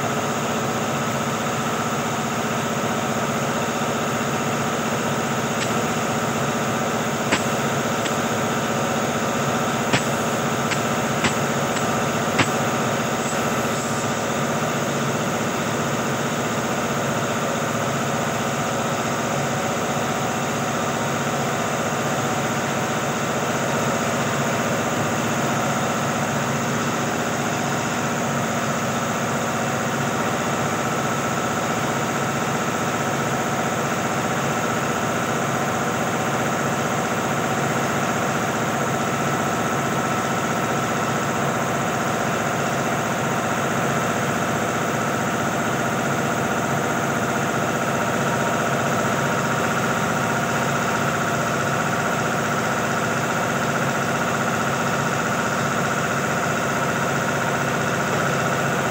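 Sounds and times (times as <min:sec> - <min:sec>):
motor humming: 0:05.6 - 0:14.4
sharp clicks: 0:07.3 - 0:08.2, 0:09.9 - 0:12.6.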